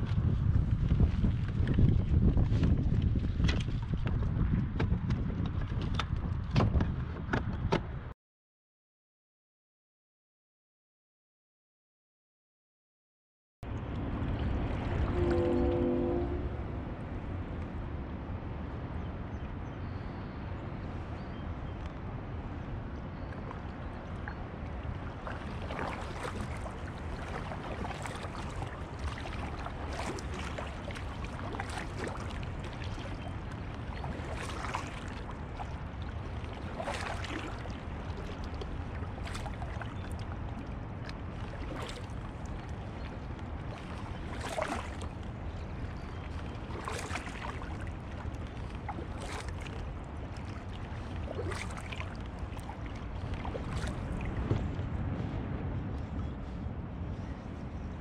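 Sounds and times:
steady low rumble: 13.6s - 46.8s, 52.1s - 58.0s
paddle splashing in water: 13.7s - 17.2s, 23.1s - 55.0s.

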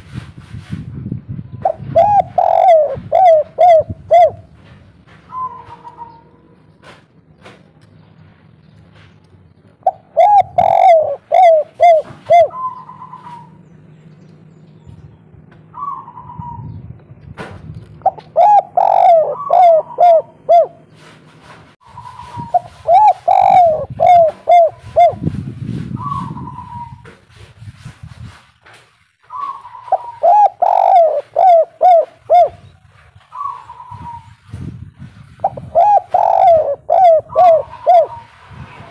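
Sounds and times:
dove cooing: 1.6s - 4.6s, 5.3s - 6.3s, 9.8s - 13.6s, 15.7s - 16.8s, 18.0s - 21.0s, 22.0s - 25.4s, 26.0s - 27.0s, 29.3s - 32.7s, 33.3s - 34.4s, 35.4s - 38.4s.

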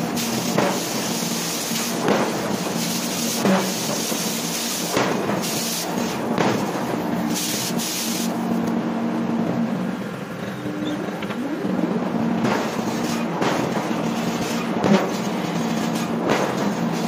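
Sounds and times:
hissing bursts: 0.0s - 8.6s, 12.4s - 17.0s
machine hum: 5.0s - 17.0s.

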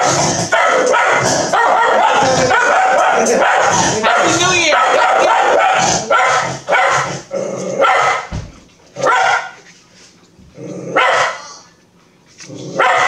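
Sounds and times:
dog barking: 0.0s - 7.2s, 7.8s - 8.3s, 9.0s - 9.6s, 11.0s - 11.5s, 12.8s - 13.0s.

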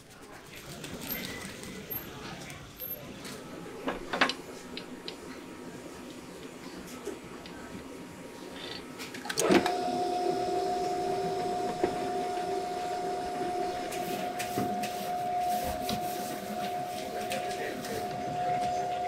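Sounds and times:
stand mixer motor humming: 9.4s - 15.9s.

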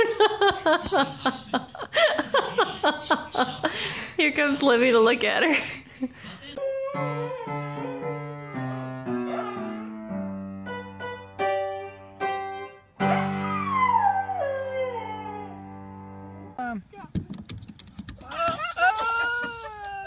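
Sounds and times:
dog howling: 6.6s - 9.9s, 11.8s - 15.6s
piano notes and chords: 7.0s - 16.6s.

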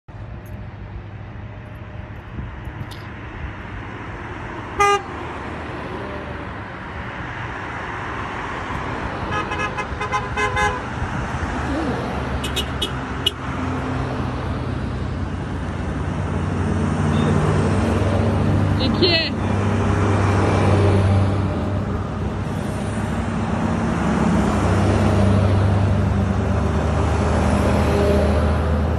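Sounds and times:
traffic and engine noise: 0.1s - 28.9s
vehicle horns honking: 4.8s - 5.2s, 9.3s - 10.9s, 12.4s - 13.5s, 17.1s - 17.4s.

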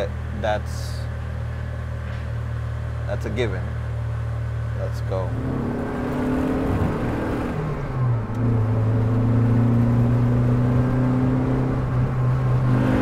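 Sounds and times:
car engine drone from inside cabin: 0.0s - 13.0s.

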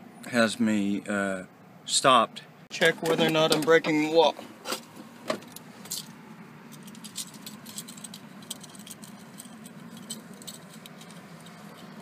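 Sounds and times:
low steady hum: 0.0s - 12.0s
light clicks and rattles: 3.0s - 12.0s.

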